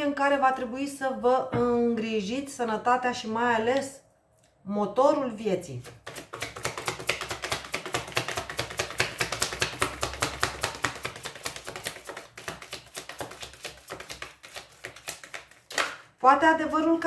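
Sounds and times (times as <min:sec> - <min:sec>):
cards being shuffled: 0:06.0 - 0:16.1.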